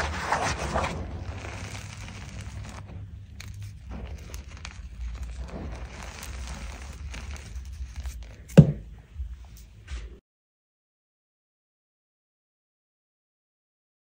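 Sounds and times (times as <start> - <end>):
hands crunching chalk powder: 0.0 - 8.8
sharp knock: 8.6 - 8.9.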